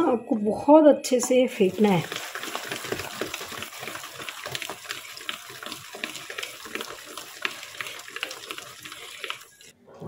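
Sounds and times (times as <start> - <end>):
batter beaten by hand in bowl: 1.7 - 9.7.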